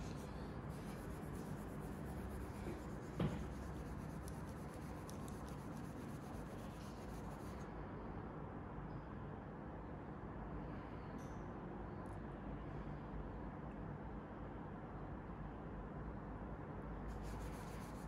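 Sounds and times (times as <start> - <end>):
cloth rubbing a rod: 0.0 - 7.6
steady low hum: 0.0 - 14.2, 16.9 - 18.0
knock: 3.1 - 3.6.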